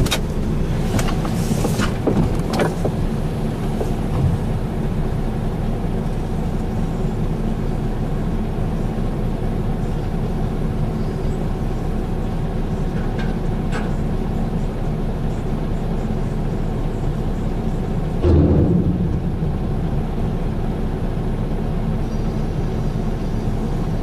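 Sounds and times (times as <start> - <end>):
excavator diesel engine running: 0.0 - 24.0
metal clanks: 18.2 - 21.0.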